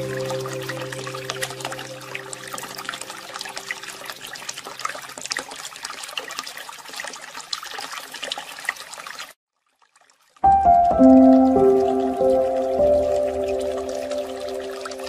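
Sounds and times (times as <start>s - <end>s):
sustained musical tones: 0.0s - 4.0s, 10.4s - 15.0s
water trickling and splashing: 0.0s - 15.0s.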